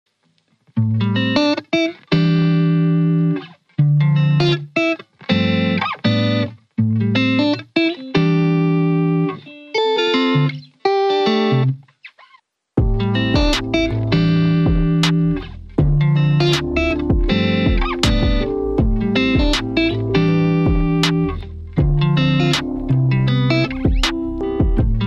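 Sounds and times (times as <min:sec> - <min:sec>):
guitar background music: 0:00.2 - 0:25.0.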